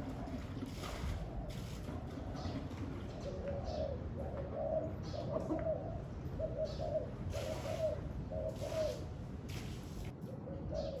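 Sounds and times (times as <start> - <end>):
dove cooing: 0.0 - 9.1, 10.4 - 11.0.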